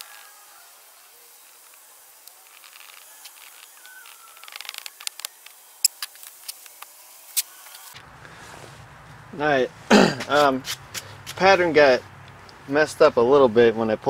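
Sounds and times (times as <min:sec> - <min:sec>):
small clicks: 0:01.6 - 0:08.0.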